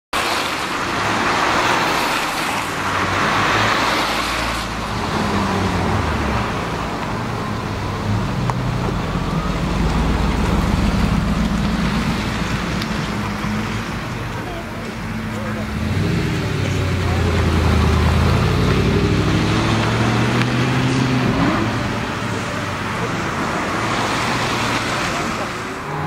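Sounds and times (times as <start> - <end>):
car engine revving past: 0.2 - 7.3, 15.4 - 26.0
road noise hiss: 0.2 - 26.0.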